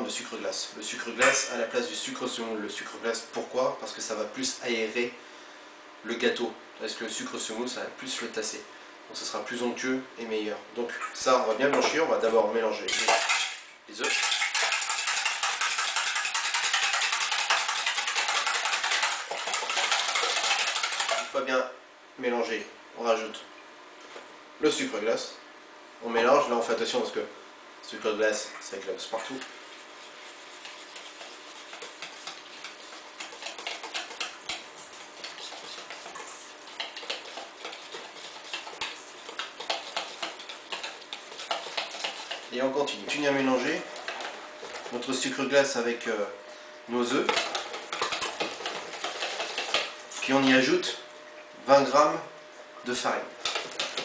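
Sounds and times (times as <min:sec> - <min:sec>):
whisk clattering in metal bowl: 0:12.9 - 0:21.4, 0:29.2 - 0:43.2, 0:43.8 - 0:45.4, 0:47.0 - 0:50.5, 0:53.4 - 0:54.0.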